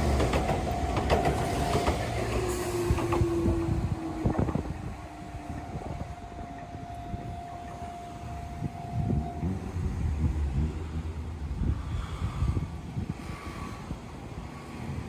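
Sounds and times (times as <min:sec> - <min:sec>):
wheels clicking over rail joints: 0:00.0 - 0:11.7
train passing: 0:00.0 - 0:15.0
train whine: 0:00.0 - 0:15.0.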